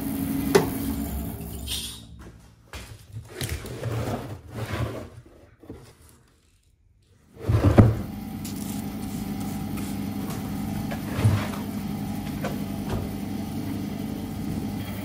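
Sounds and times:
bandsaw running: 0:00.0 - 0:02.1, 0:08.1 - 0:15.0.

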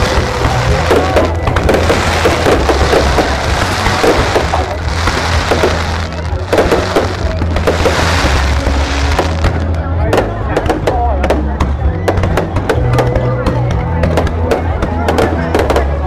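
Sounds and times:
deep rumble: 0:00.0 - 0:10.1
fireworks crackling: 0:00.0 - 0:11.5.

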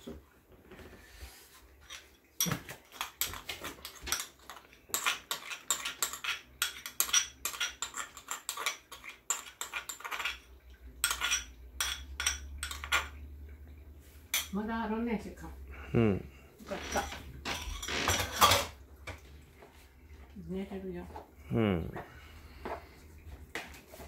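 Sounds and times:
utensils and dishes clattering: 0:01.8 - 0:13.2, 0:16.7 - 0:19.2.

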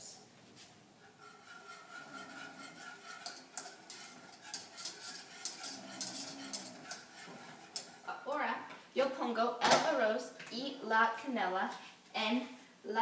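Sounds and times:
metal utensil scraping saucepan: 0:01.0 - 0:08.3.

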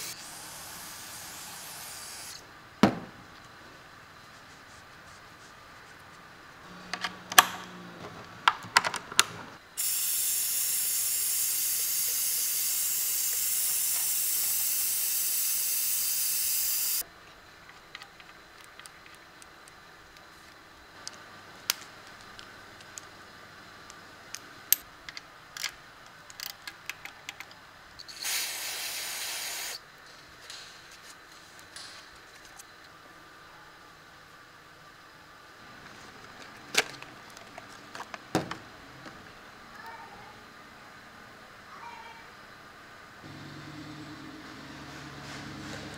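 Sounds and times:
aerosol can spraying: 0:00.0 - 0:02.4, 0:09.8 - 0:17.0, 0:28.1 - 0:29.8
compressed air hissing: 0:00.0 - 0:02.4, 0:09.8 - 0:17.0, 0:28.1 - 0:29.8.

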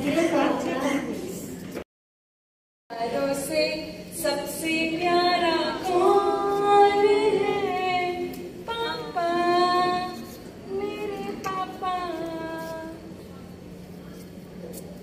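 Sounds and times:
woman singing slow melody: 0:02.9 - 0:13.0.

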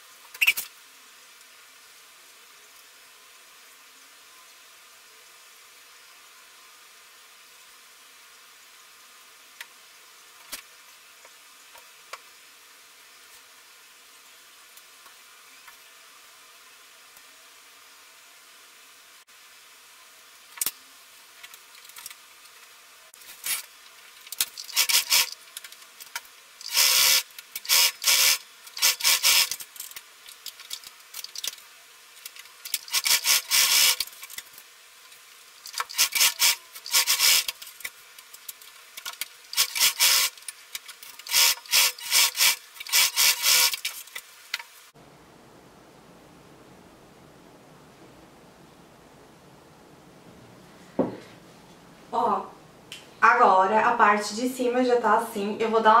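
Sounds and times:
sewing machine stitching: 0:26.6 - 0:29.6, 0:32.8 - 0:34.0, 0:35.7 - 0:37.6, 0:39.6 - 0:40.4, 0:41.2 - 0:43.9.

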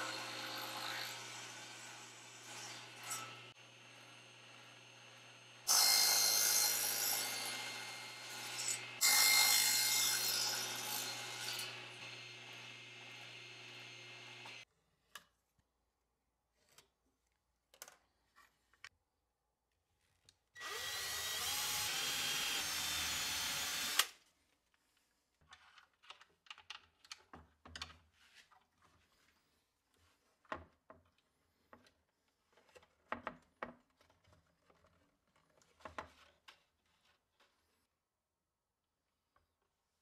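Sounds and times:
power drill boring into wood: 0:20.6 - 0:24.1.

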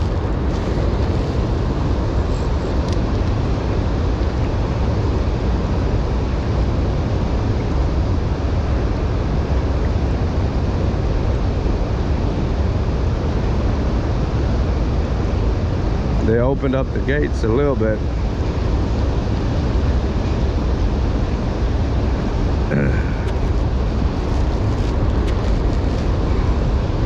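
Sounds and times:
turbulent river water rushing: 0:00.0 - 0:09.4, 0:18.0 - 0:27.0
deep fluttering rumble: 0:00.0 - 0:27.0.

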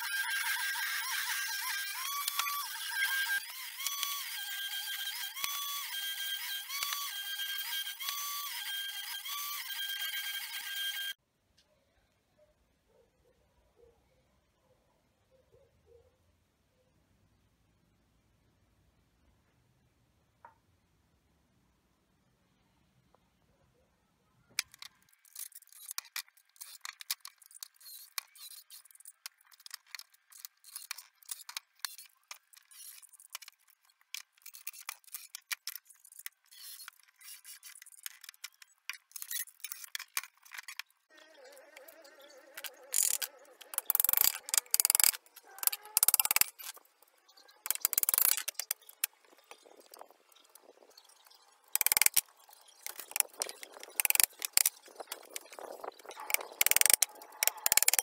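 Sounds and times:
tools clicking and scraping: 0:24.6 - 0:41.0, 0:42.5 - 0:58.0.

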